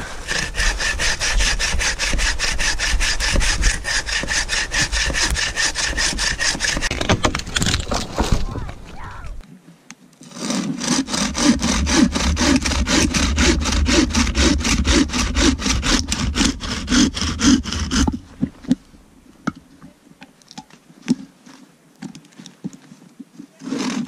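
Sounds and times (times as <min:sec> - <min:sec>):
bow saw cutting a log: 0:00.0 - 0:08.7, 0:10.2 - 0:18.2, 0:23.5 - 0:24.0.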